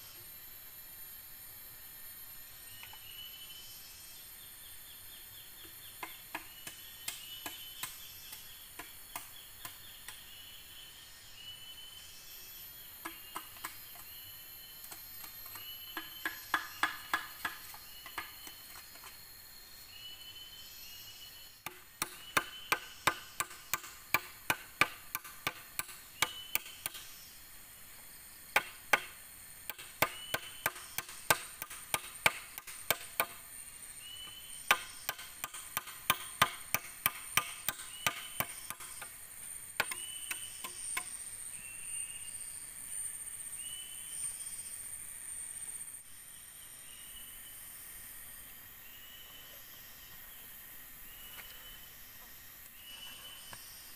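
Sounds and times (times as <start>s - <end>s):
blade chopping bamboo pole: 29.7s - 33.4s.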